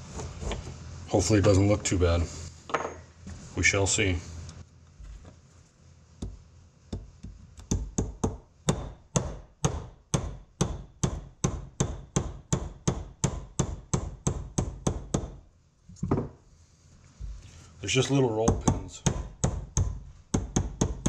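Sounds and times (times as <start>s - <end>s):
hammer striking steel punch: 7.7s - 15.4s.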